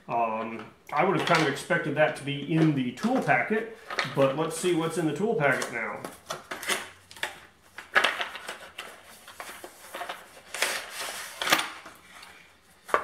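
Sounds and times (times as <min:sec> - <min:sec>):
packaging rustling and clicking: 0:05.5 - 0:13.0.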